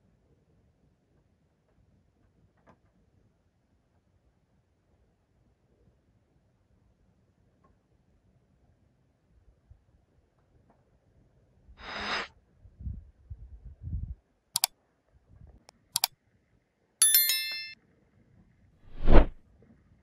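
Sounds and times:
bright metallic ring: 17.0 - 17.8.

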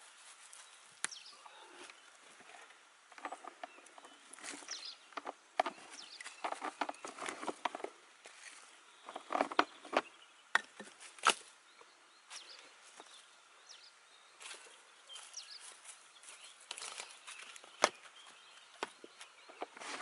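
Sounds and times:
dead wood clattering: 2.4 - 8.0, 9.0 - 11.4.

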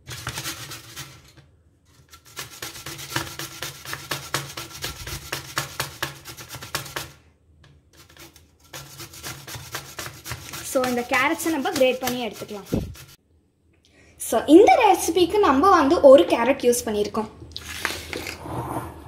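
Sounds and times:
carrot scraping on metal grater: 0.0 - 7.2, 7.9 - 13.2.

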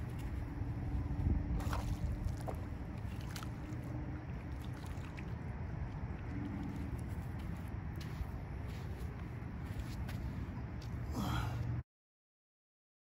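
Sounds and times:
wind rumbling on microphone: 0.0 - 11.1
faint steady hum: 0.0 - 11.8
water splashing: 1.5 - 7.6.

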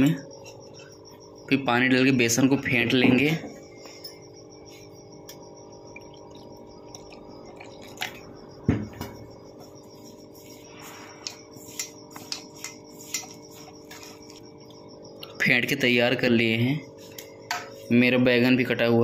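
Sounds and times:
steady hum: 0.0 - 19.0
water pouring into bowl: 5.9 - 8.2.

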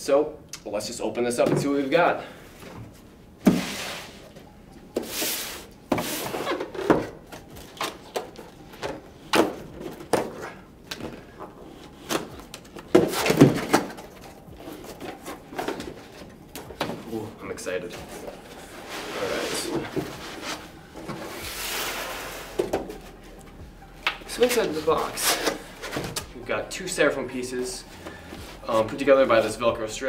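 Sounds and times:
cardboard scraping: 3.5 - 4.4, 5.0 - 8.3, 17.8 - 23.4, 24.3 - 26.3.

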